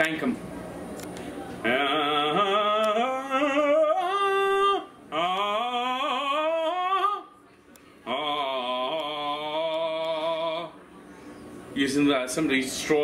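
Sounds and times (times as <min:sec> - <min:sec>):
man singing long notes: 0:01.6 - 0:07.3, 0:08.1 - 0:10.8.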